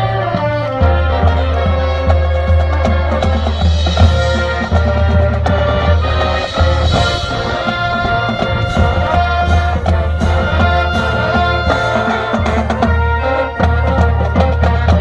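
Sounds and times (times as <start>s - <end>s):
brass and woodwind chords: 0.0s - 15.0s
percussion: 0.0s - 15.0s
drum hits: 2.5s - 13.0s.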